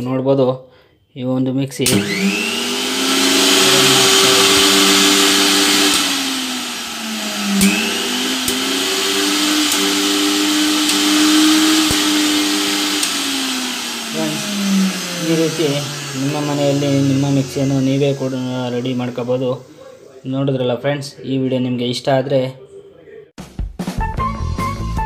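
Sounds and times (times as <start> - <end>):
mixer grinder motor whine: 1.8 - 20.2.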